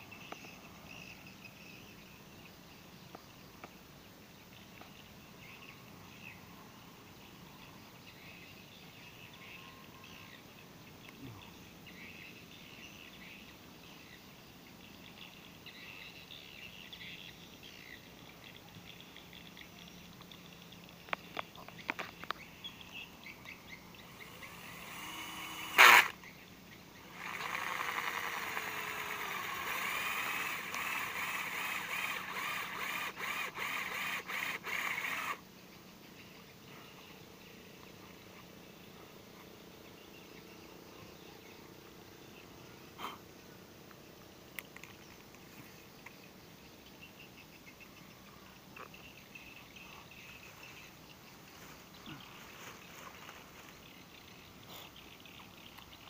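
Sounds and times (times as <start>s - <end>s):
faint bird calls: 4.5s - 14.2s, 14.8s - 56.0s
handheld drill whirring: 24.2s - 26.2s, 27.1s - 35.4s.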